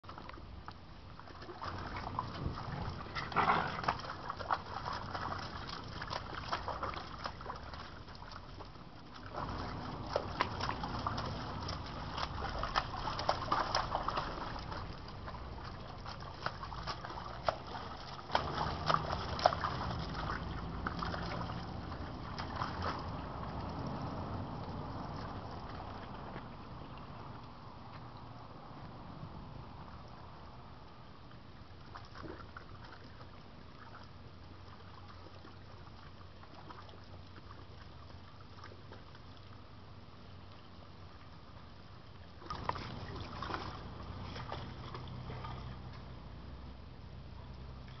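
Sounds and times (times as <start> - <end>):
water splashing and sloshing: 0.0 - 48.0
puppy sounds: 2.7 - 4.1.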